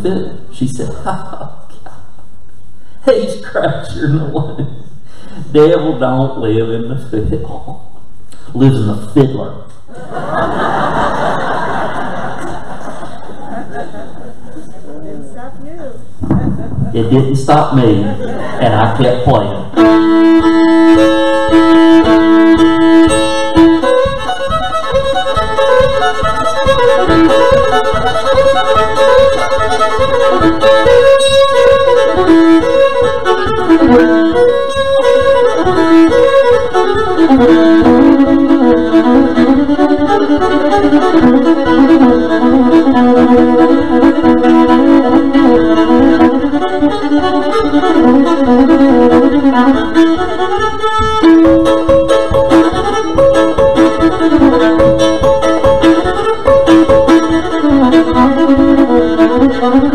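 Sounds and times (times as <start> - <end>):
solo fiddle tune: 17.0 - 59.9.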